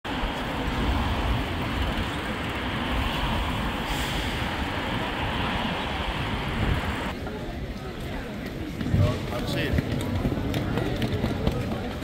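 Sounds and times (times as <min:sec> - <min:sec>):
vehicles passing: 0:00.1 - 0:07.4
low rumble of engines and tyres: 0:00.1 - 0:12.0.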